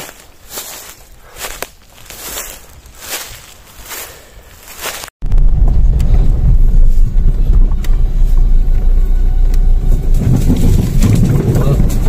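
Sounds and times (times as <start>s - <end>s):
engine and tyre rumble: 4.7s - 12.0s.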